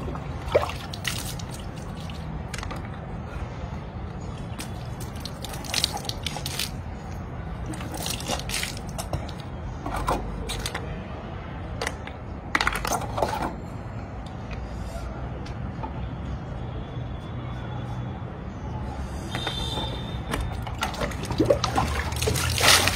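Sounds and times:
water splashing: 0.0 - 2.3, 4.4 - 6.8, 7.6 - 9.0, 20.6 - 22.9.

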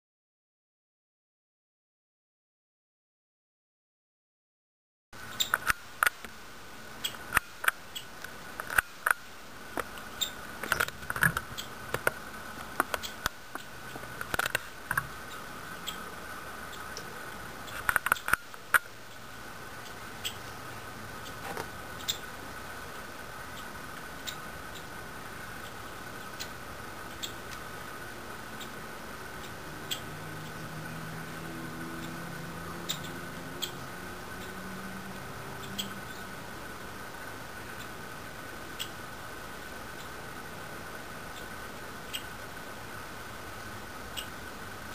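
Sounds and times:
young woodpeckers squeaking: 10.1 - 10.8, 11.5 - 11.8, 12.9 - 14.0, 15.2 - 17.0, 19.1 - 20.6, 21.2 - 22.4, 23.5 - 27.5, 28.5 - 30.7, 32.0 - 34.6, 35.6 - 36.4, 38.7 - 39.0, 41.2 - 42.4.

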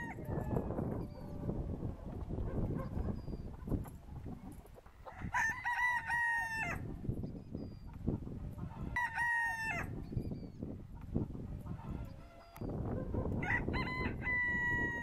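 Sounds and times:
rooster crowing: 5.1 - 6.8, 13.4 - 15.0.

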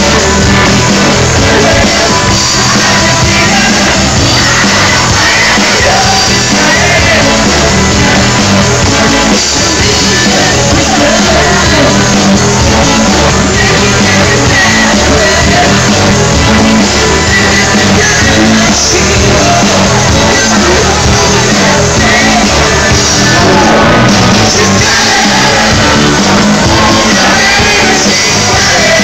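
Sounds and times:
live rock band playing: 0.0 - 29.0
singers singing and shouting: 0.0 - 29.0.

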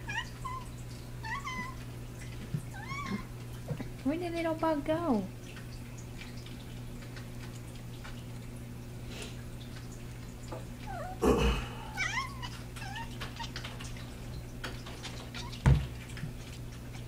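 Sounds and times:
steady low hum: 0.4 - 13.3
kitten meowing: 12.0 - 13.2.

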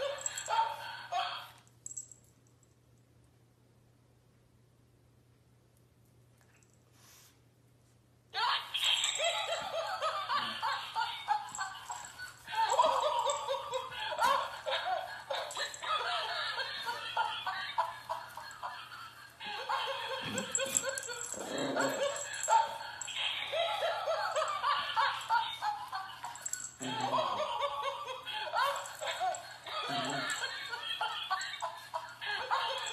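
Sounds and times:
tinny toy laughter: 8.4 - 32.9.

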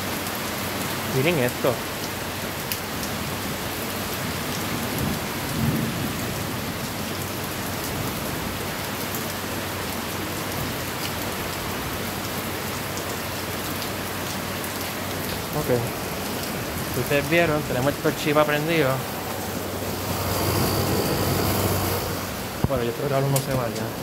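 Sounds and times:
heavy rain falling: 0.0 - 24.0
low rumble: 15.9 - 22.8.

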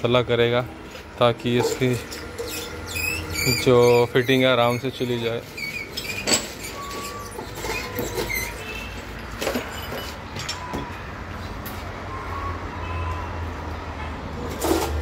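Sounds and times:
rubber scraping and squeaking: 1.4 - 10.2.

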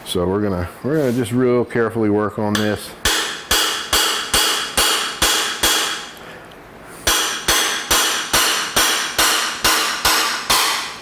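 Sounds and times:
hammer and chisel striking metal: 2.6 - 6.2, 7.0 - 11.0.

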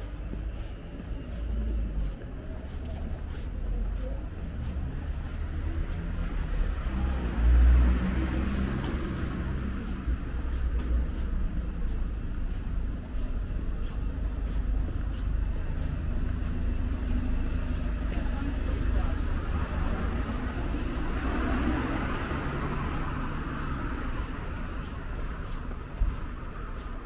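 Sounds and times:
road traffic rumble: 0.0 - 27.0
vehicle passing close by: 4.6 - 11.2, 18.6 - 26.5.

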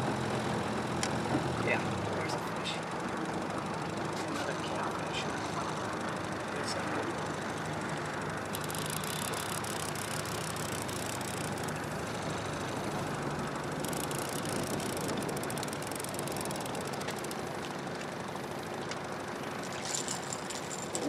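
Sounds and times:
outboard motor running: 0.0 - 21.0
faint rapid ticking: 2.9 - 18.1.

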